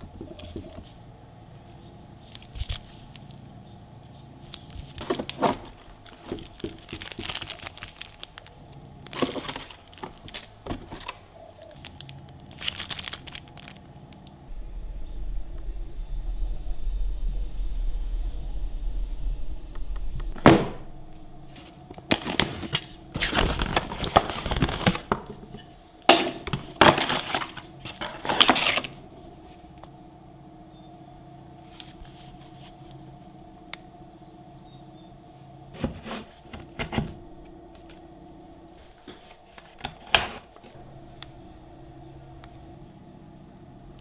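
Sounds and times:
packaging crackling and rustling: 1.6 - 3.4, 4.4 - 14.4, 21.5 - 25.7, 26.4 - 29.6.

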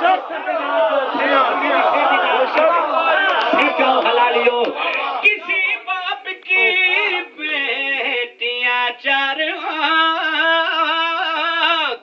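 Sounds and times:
man singing into a microphone: 5.5 - 12.0.

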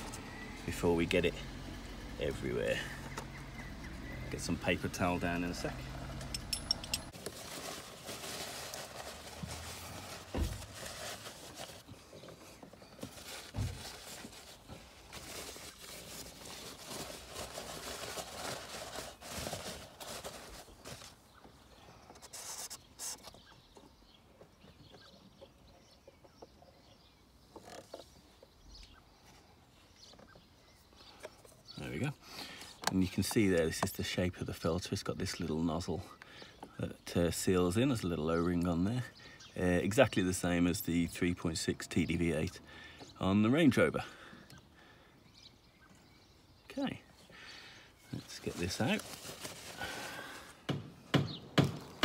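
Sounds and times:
paper towel rustling and crumpling: 7.1 - 12.0, 12.9 - 21.3, 48.2 - 50.4.

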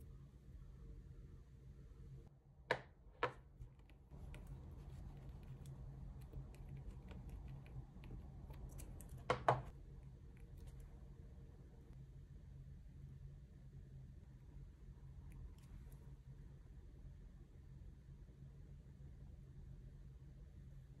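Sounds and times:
faint low hum: 0.0 - 21.0
light ticks and scrapes: 3.6 - 9.7.

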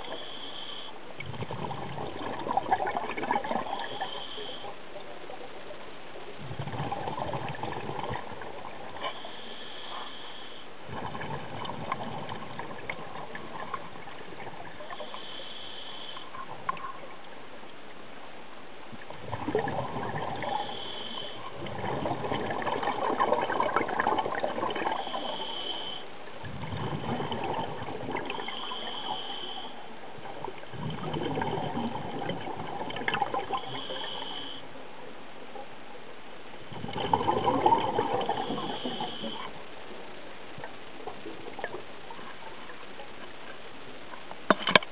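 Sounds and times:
regulator hiss: 0.0 - 1.2, 3.8 - 4.8, 9.0 - 10.8, 14.8 - 16.5, 20.4 - 21.7, 24.8 - 26.1, 28.3 - 29.9, 33.6 - 34.7, 38.2 - 39.5
exhaled bubbles gurgling underwater: 0.0 - 17.3, 18.9 - 34.6, 36.6 - 44.4.

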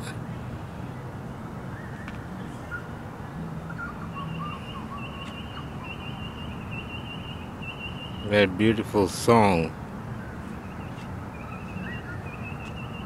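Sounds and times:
warbling bird song: 0.8 - 13.0.

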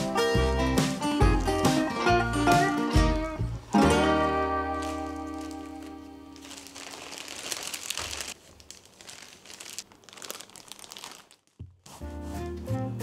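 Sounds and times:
plastic bag crinkling: 4.6 - 12.0.

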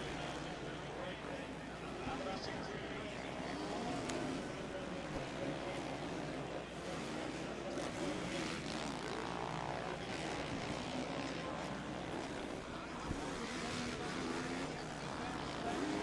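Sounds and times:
motocross bike engine revving: 3.2 - 16.0.

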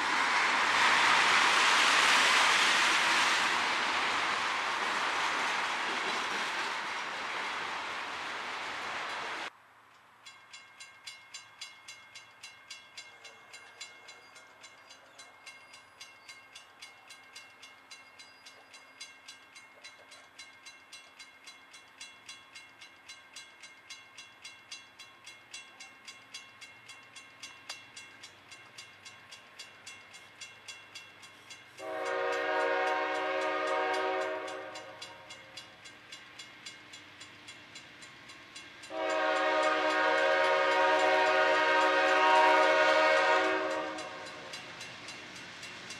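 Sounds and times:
crossing warning bell ringing: 10.0 - 45.9
locomotive air horn blast: 31.8 - 35.2, 38.9 - 44.3.

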